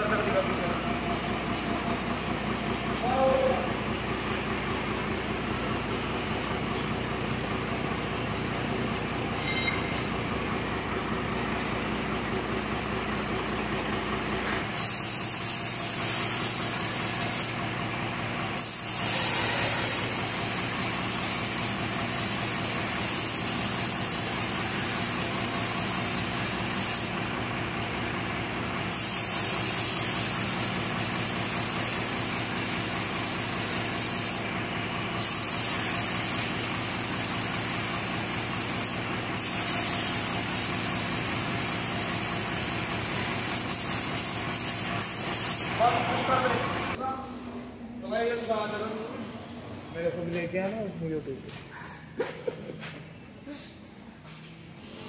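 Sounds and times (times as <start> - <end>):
mechanical hum: 0.0 - 55.0
paint spray gun hissing: 14.7 - 17.6, 18.6 - 27.2, 28.9 - 34.5, 35.2 - 45.8.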